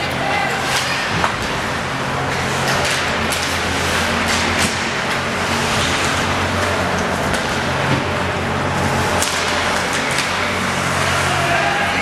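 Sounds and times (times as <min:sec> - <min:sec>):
hockey sticks and puck knocking: 0:09.2 - 0:10.6.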